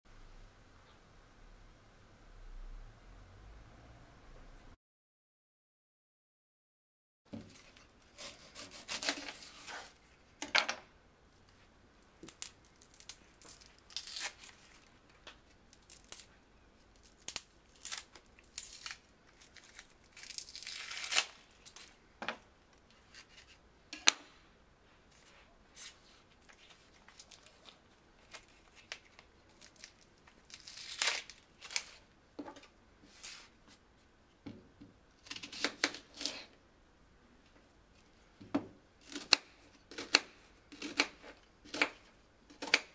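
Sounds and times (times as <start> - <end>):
onion skin peeling and tearing: 7.5 - 10.0, 11.4 - 22.0, 26.5 - 32.1, 35.2 - 36.6, 39.0 - 42.9.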